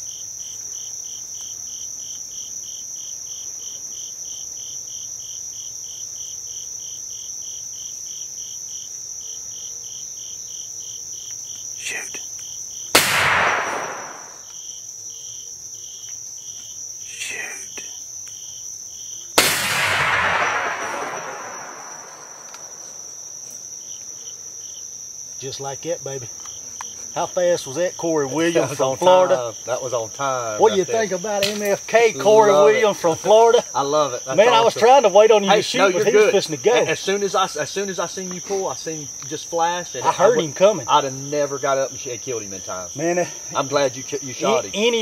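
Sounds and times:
constant high buzz: 0.0 - 45.0
insects chirping: 0.0 - 45.0
shotgun blasts echoing: 13.0 - 14.4, 19.4 - 22.9.

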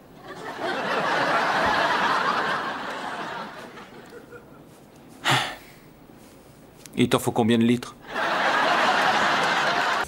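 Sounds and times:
studio audience laughing: 0.2 - 4.6, 8.1 - 10.0.

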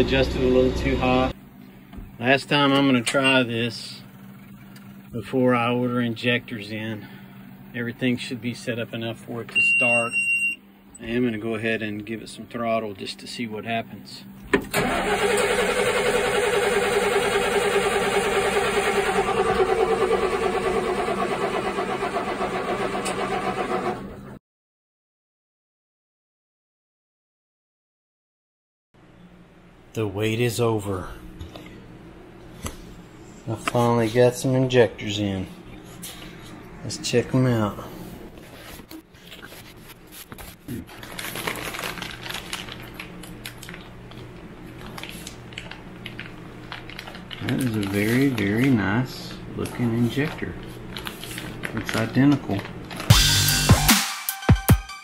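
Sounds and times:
diesel engine cranking: 14.6 - 24.4
plastic bag crinkling: 39.2 - 49.0, 49.7 - 53.1.

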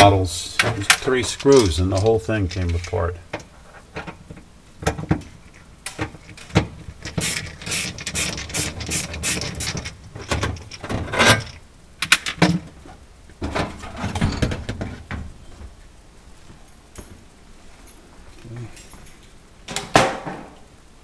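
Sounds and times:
panel rattling and scraping: 0.6 - 15.4.

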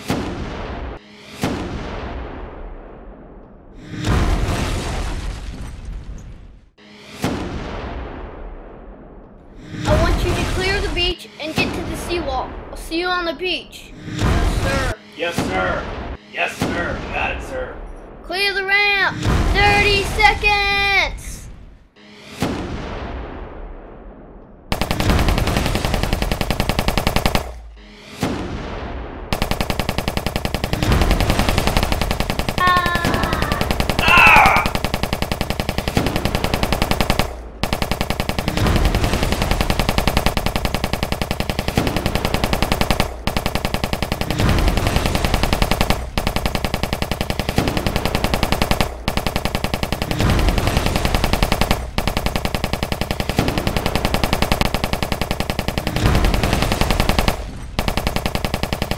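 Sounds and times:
machine-gun fire: 24.7 - 27.7, 29.3 - 58.9.

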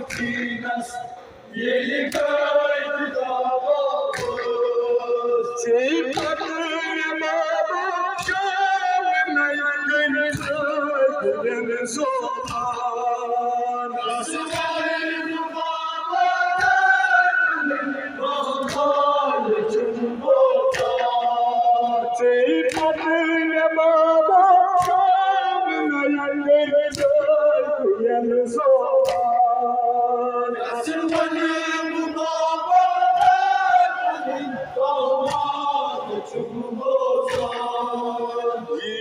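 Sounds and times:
men chanting in unison: 0.0 - 39.0
sharp slaps: 0.1 - 1.2, 2.0 - 2.6, 4.1 - 5.0, 6.1 - 6.5, 8.2 - 8.5, 10.3 - 10.7, 12.4 - 12.8, 14.5 - 14.9, 16.6 - 17.1, 18.6 - 19.0, 20.6 - 21.5, 22.7 - 23.1, 24.8 - 25.1, 26.9 - 27.3, 29.0 - 29.4, 33.2 - 33.6, 35.2 - 35.7, 37.3 - 38.0.

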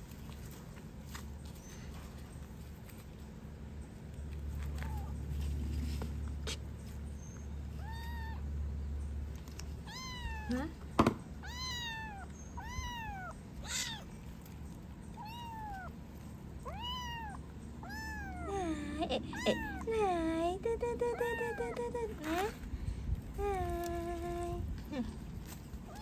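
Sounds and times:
kitten meowing: 7.8 - 8.4, 9.8 - 10.7, 11.4 - 14.1, 15.2 - 16.0, 16.6 - 18.6, 19.3 - 19.9.

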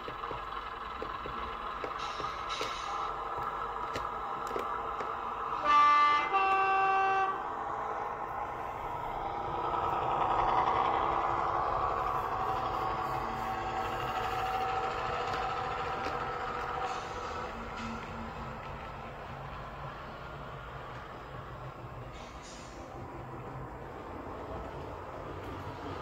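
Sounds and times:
diesel engine sound: 0.0 - 26.0
two-tone train horn: 5.5 - 7.5.

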